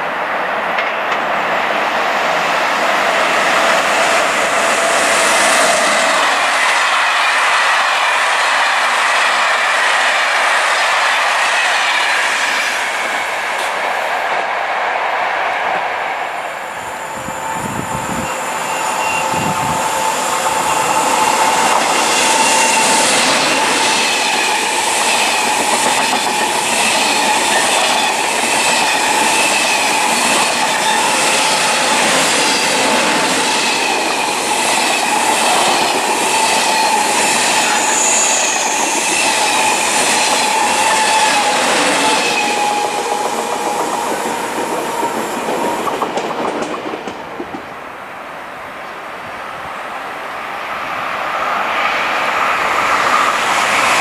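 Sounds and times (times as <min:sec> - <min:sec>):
train high whine: 0:00.0 - 0:54.0
train wheels clickety-clack: 0:00.7 - 0:01.4, 0:03.1 - 0:14.6, 0:18.1 - 0:47.8.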